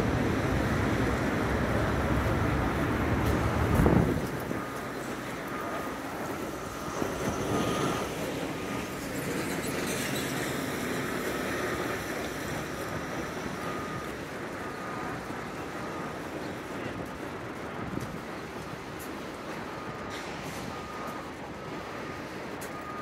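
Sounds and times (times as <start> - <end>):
wind on microphone: 0.0 - 4.7
vehicles going by: 0.0 - 23.0.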